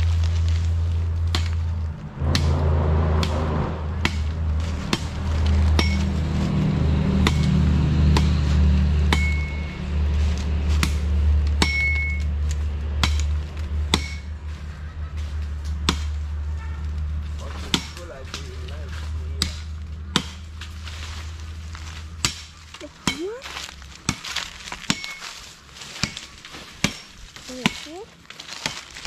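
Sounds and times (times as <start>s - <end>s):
low rumble: 0.0s - 17.5s
machete chopping a branch: 1.2s - 1.7s, 4.0s - 6.1s, 7.1s - 9.7s, 10.3s - 14.3s, 15.7s - 16.2s, 17.6s - 18.5s, 19.4s - 20.8s, 22.1s - 23.4s, 24.0s - 29.0s.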